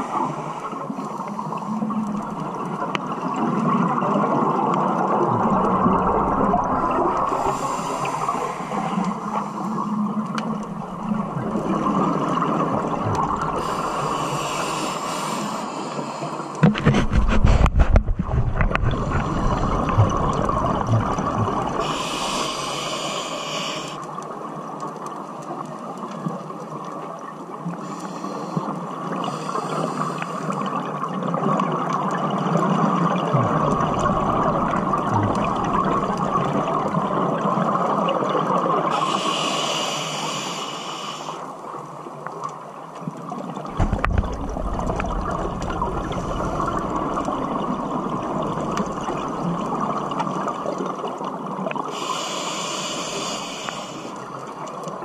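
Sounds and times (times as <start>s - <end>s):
underwater wash: 0.0s - 55.0s
exhaled bubbles bursting: 2.2s - 7.6s, 10.0s - 14.1s, 16.8s - 22.1s, 30.8s - 38.9s, 43.6s - 51.2s
regulator inhalation hiss: 7.3s - 9.8s, 13.6s - 16.6s, 21.8s - 24.0s, 27.8s - 30.6s, 38.9s - 41.5s, 51.9s - 54.3s.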